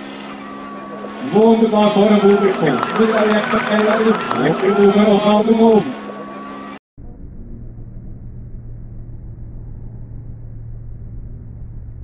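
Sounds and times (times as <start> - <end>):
constant low hum: 0.0 - 12.0
steady low rumble: 7.0 - 12.0.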